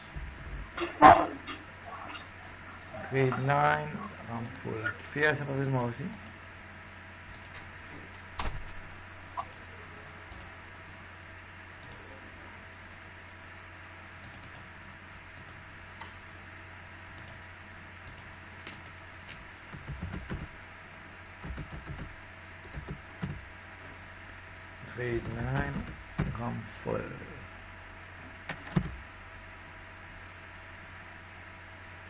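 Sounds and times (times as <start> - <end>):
steady electrical hum: 0.0 - 32.0
computer keyboard typing: 14.2 - 14.6, 19.7 - 20.5, 21.4 - 22.1, 22.7 - 23.4, 25.2 - 26.4.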